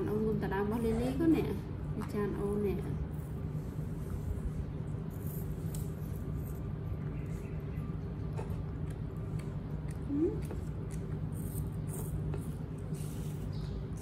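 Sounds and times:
monkeys eating with smacking: 5.8s - 14.0s.

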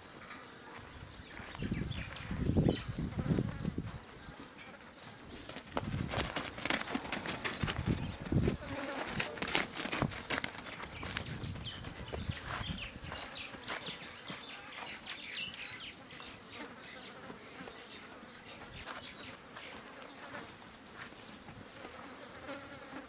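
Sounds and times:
insects buzzing and chirping: 0.0s - 23.0s
hoof thuds on dirt: 5.3s - 15.6s.

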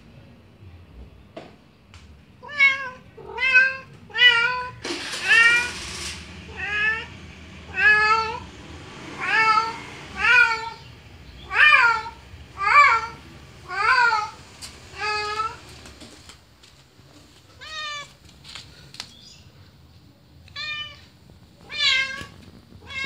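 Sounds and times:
cat meowing: 2.4s - 5.8s, 6.5s - 7.1s, 7.7s - 8.4s, 9.2s - 15.7s, 17.5s - 18.2s, 20.5s - 23.0s.

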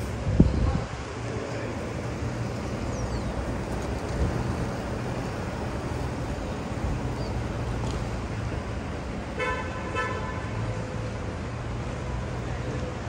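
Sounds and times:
road traffic rumble: 0.0s - 13.0s
vehicle horn toot: 9.4s - 10.6s.

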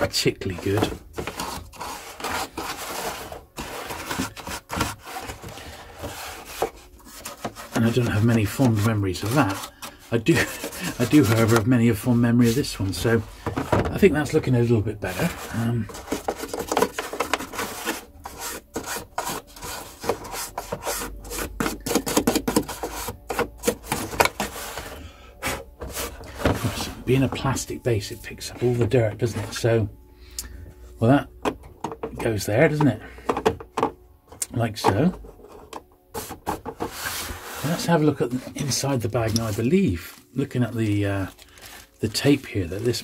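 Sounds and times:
toothbrush scrubbing plastic: 0.4s - 11.8s.

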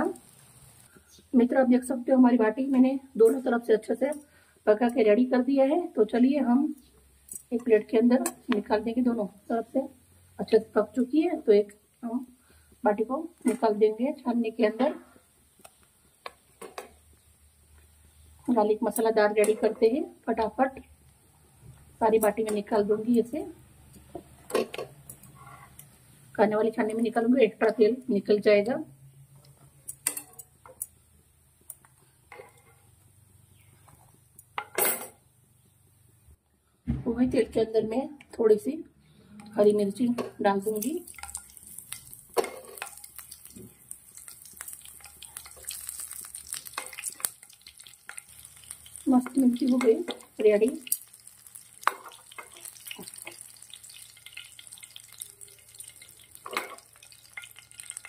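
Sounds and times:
oil sizzling and crackling: 0.0s - 36.3s, 40.2s - 58.0s
utensils scraping a frying pan: 24.6s - 25.9s, 40.8s - 43.4s, 44.2s - 49.0s, 49.7s - 58.0s
metal tongs clattering: 40.8s - 43.2s, 44.2s - 48.7s, 56.0s - 58.0s.

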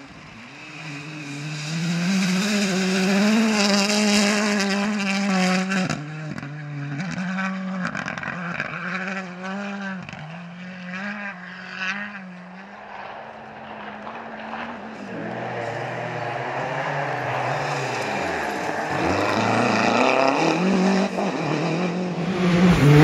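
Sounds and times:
rally car engine at high revs: 0.0s - 23.0s
second rally car engine: 0.0s - 23.0s.

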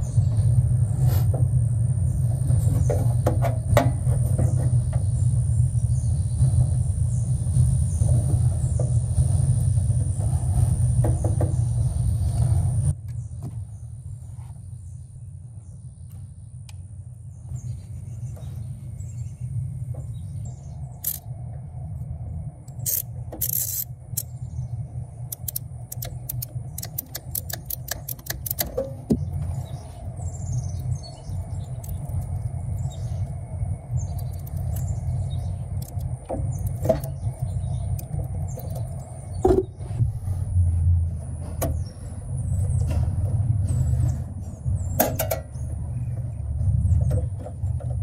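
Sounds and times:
steady low rumble: 0.0s - 48.0s
wire strippers clicking: 25.2s - 29.4s, 30.8s - 33.0s, 34.0s - 39.1s.

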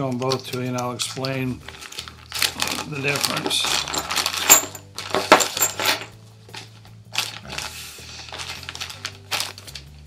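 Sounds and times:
plastic packaging crinkling: 1.0s - 5.4s, 6.6s - 10.0s
metal chain and plates clinking: 2.6s - 6.2s.

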